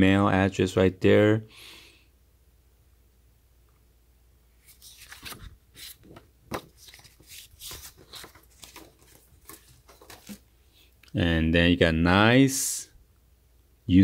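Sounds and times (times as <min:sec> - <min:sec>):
paper and cardboard rustling: 0:04.6 - 0:10.5.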